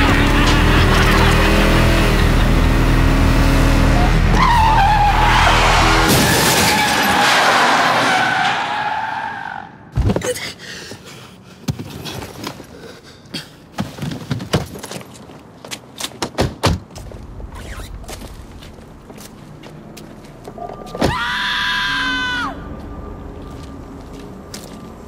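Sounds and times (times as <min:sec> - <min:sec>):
car tyres squealing: 0:03.8 - 0:09.8, 0:17.5 - 0:18.3.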